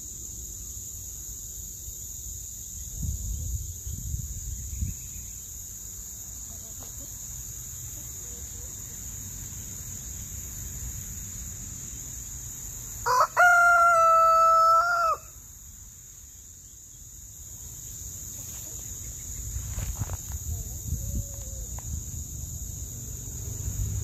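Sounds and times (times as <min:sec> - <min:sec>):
rooster crowing: 0:13.0 - 0:15.4.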